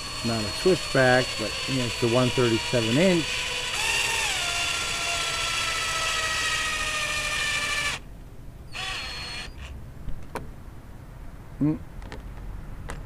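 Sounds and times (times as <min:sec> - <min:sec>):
cordless drill whining: 0:00.0 - 0:08.0, 0:08.7 - 0:09.7.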